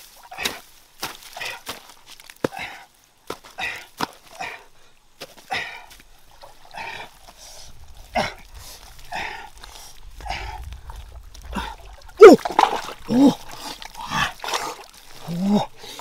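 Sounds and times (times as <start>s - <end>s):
wet mud scrapes and squelches: 0.0s - 16.0s.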